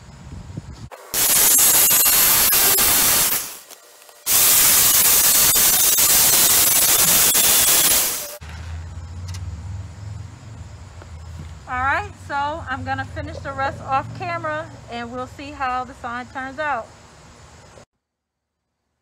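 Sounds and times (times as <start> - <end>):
jigsaw cutting wood: 4.3 - 8.4.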